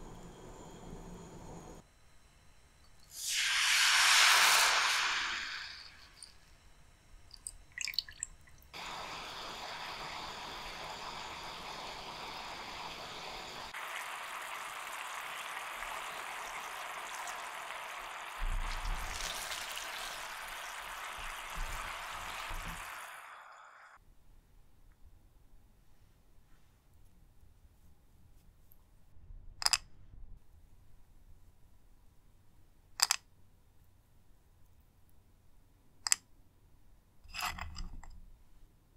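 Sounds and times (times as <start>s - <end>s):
sauce dripping into a pan: 3.1s - 6.3s, 7.3s - 11.8s, 13.7s - 23.4s
sauce bubbling and sizzling: 3.1s - 6.4s, 8.7s - 24.0s.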